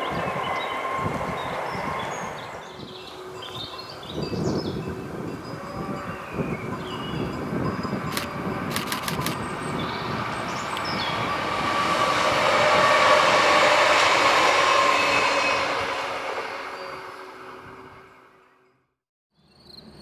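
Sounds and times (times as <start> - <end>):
faint birdsong: 0.0 - 5.0
electric train passing with whine: 0.0 - 19.0
sharp clicks: 8.1 - 9.4.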